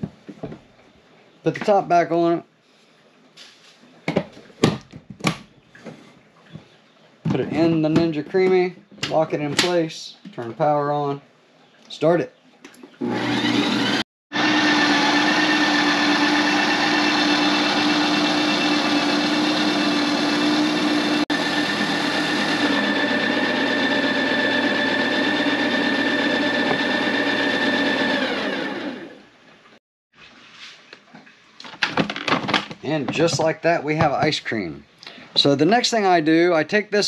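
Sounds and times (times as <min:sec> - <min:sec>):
ice cream maker motor whirring: 0:13.0 - 0:29.2.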